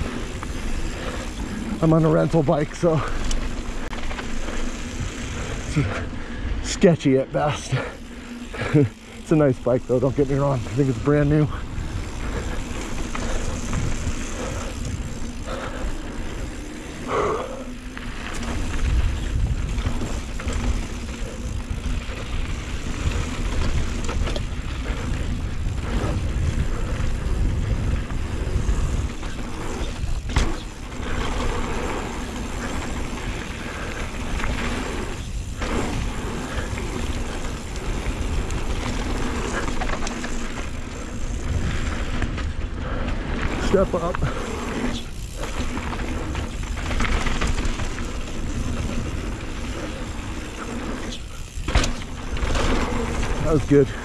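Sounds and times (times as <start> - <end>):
bike frame and drivetrain rattle: 0.0 - 54.0
bike tyres rolling on dirt: 0.0 - 54.0
wind rumble on microphone: 11.6 - 15.6, 18.0 - 40.0, 40.7 - 44.4.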